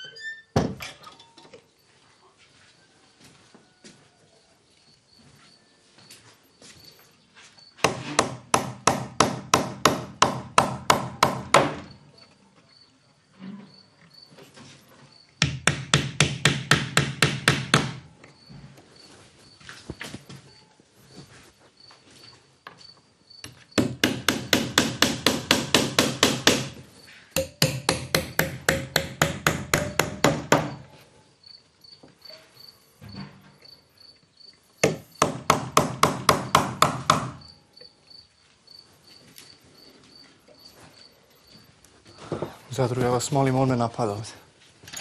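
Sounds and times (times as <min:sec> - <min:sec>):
cricket chirping: 0:01.2 - 0:07.8, 0:11.3 - 0:15.4, 0:18.2 - 0:21.2, 0:21.8 - 0:23.9, 0:30.6 - 0:42.5
rapid pounding blows on wood: 0:07.8 - 0:11.9, 0:15.4 - 0:18.1, 0:23.8 - 0:26.8, 0:27.4 - 0:30.8, 0:34.8 - 0:37.4
knocks on wood: 0:34.8 - 0:37.4.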